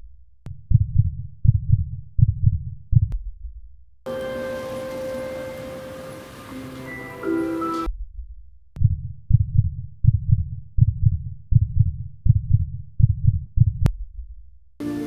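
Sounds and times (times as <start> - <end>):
heartbeat thumps: 0.0 - 3.8, 7.9 - 14.6.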